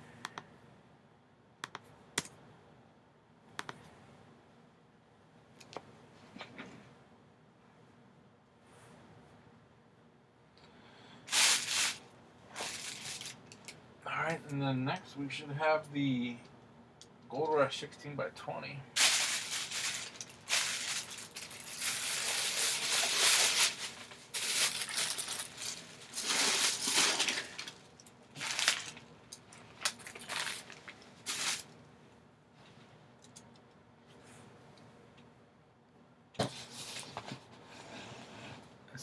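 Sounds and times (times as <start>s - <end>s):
plastic bag crinkling: 11.3s - 13.8s, 19.0s - 31.8s.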